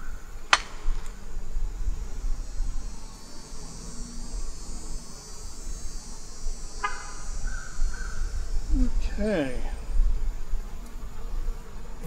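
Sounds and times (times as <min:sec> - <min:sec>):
wind rumbling on microphone: 0:00.0 - 0:03.1, 0:05.6 - 0:12.0
high-pitched insect chorus: 0:00.0 - 0:12.0
honeybees buzzing: 0:00.0 - 0:12.0.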